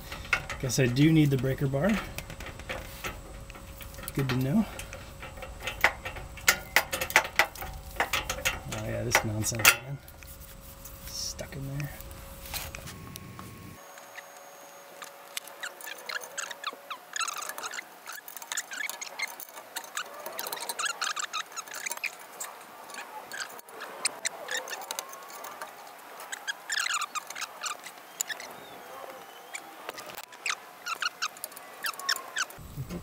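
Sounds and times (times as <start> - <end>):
metal tools clicking and clinking: 0.0 - 12.9, 15.6 - 28.5
short high squeaks: 13.8 - 28.7, 29.3 - 32.6.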